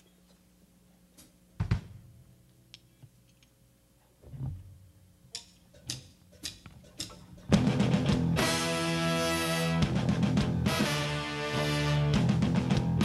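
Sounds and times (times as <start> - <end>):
faint amplifier hum: 0.0 - 13.0
drumstick count-in clicks: 5.3 - 7.6.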